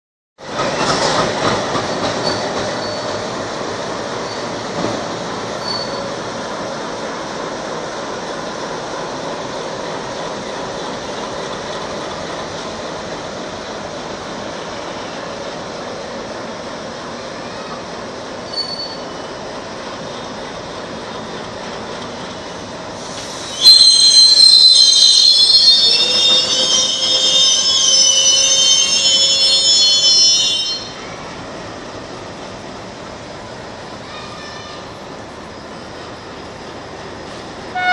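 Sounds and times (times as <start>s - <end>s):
diesel locomotive rumbling: 0.4s - 37.9s
train wheels on rail: 0.4s - 37.9s
high-pitched wheel squeals: 5.6s - 6.1s, 18.5s - 19.4s, 23.3s - 31.1s.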